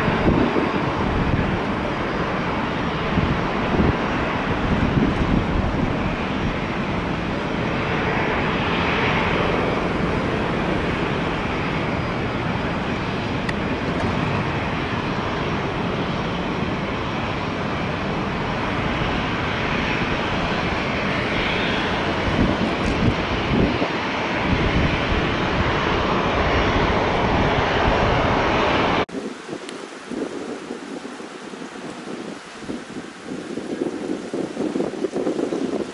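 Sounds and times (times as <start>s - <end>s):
jet engines rushing: 0.0s - 35.9s.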